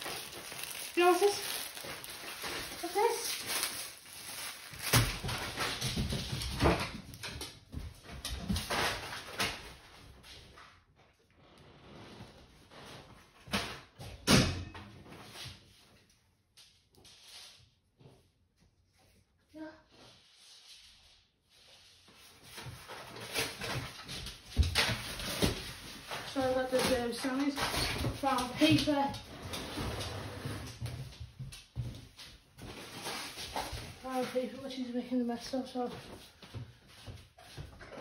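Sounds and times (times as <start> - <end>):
packaging crinkling: 0.0 - 6.2
dog crinkling paper: 0.0 - 10.1, 22.3 - 29.9, 32.6 - 35.4.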